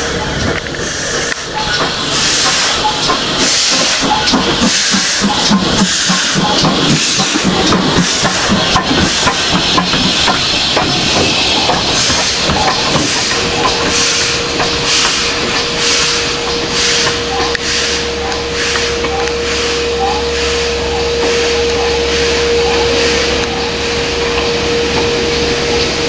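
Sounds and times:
rhythmic steam exhaust beats: 0.0 - 26.0
steam hissing: 0.0 - 26.0.

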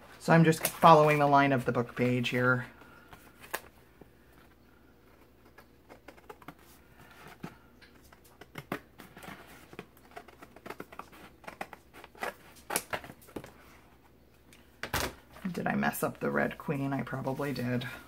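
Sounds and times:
paper rustling: 0.0 - 13.8.

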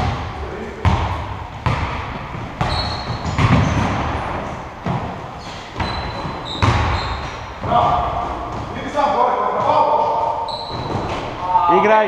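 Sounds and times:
basketball bouncing on wooden floor: 0.0 - 8.8
sneakers squeaking on court: 0.8 - 11.4.

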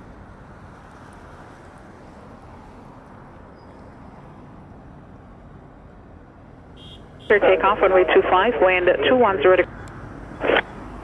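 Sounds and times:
low outdoor rumble: 7.3 - 9.7.

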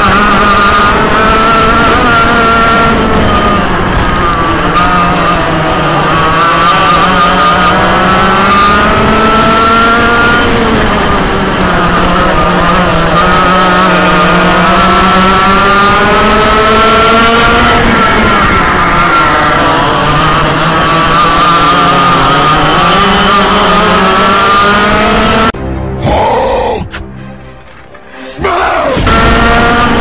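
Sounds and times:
kart engine revving: 0.0 - 25.6, 28.6 - 30.0.

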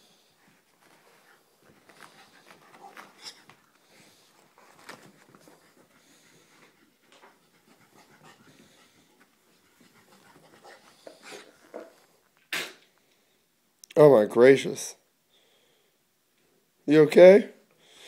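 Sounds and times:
dog panting: 0.3 - 12.0.

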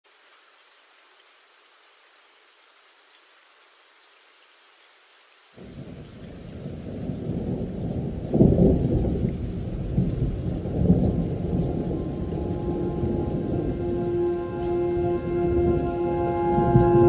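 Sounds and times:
thunder rumbling: 5.6 - 17.0.

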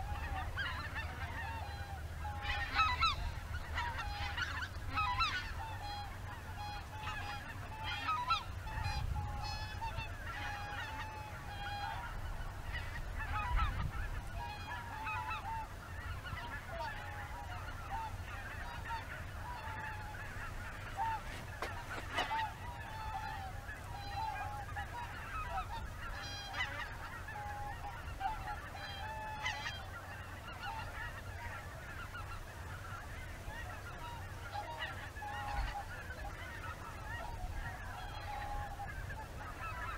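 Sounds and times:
geese honking in flight: 0.0 - 39.9.

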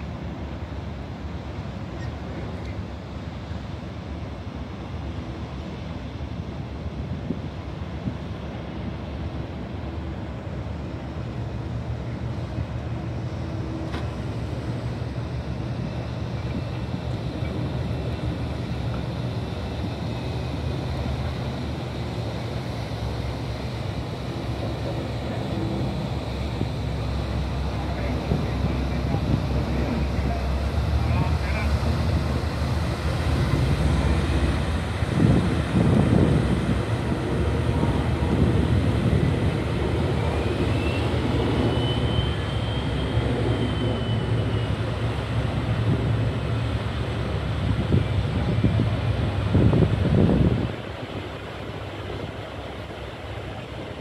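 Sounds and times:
diesel engines droning: 9.6 - 54.0
water churning: 14.6 - 54.0
wind on microphone: 15.4 - 42.5, 43.9 - 51.4
faint high whine: 39.2 - 46.8.

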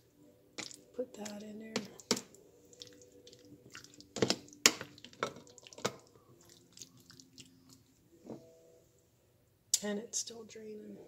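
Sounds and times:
spoon squishing beans: 0.5 - 8.0
liquid dripping into bowl: 2.2 - 7.8.

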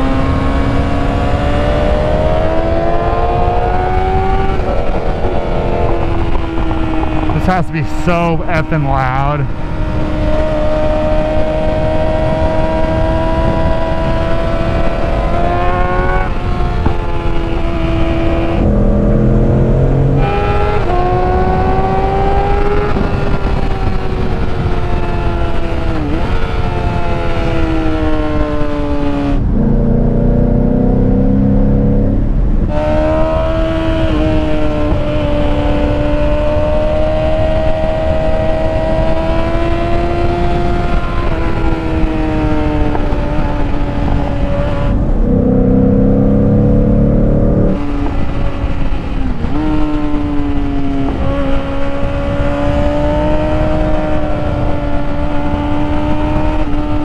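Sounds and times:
wind rushing: 0.0 - 27.5
vehicle engine accelerating: 0.0 - 57.0.

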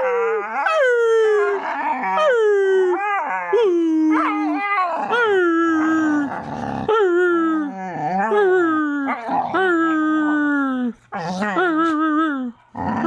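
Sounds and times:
puppy howling: 0.0 - 6.8
puppy growling: 1.4 - 2.3, 3.0 - 12.0, 12.7 - 13.0.

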